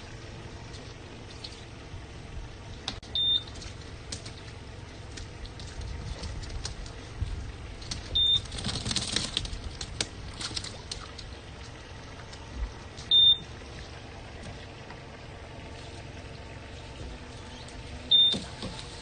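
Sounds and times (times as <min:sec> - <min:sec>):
water splashing and dripping: 0:00.0 - 0:19.0
high electronic beeps: 0:03.2 - 0:03.5, 0:13.1 - 0:13.4, 0:18.1 - 0:18.4.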